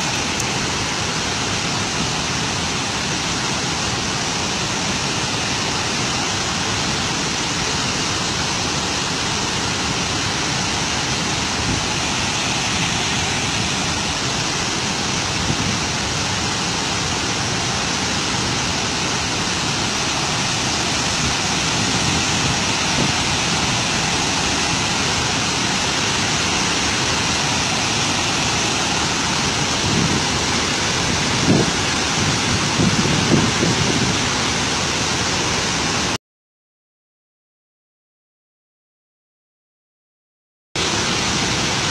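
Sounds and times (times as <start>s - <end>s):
water rushing down dam spillway: 0.0s - 36.2s, 40.8s - 41.9s.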